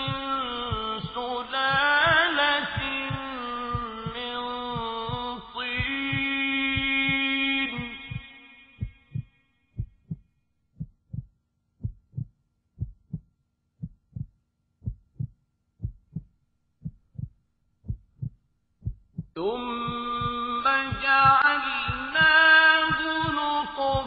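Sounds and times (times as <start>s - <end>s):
chanted recitation: 0.0s - 8.8s, 19.4s - 24.0s
heartbeat thumps: 0.0s - 24.0s.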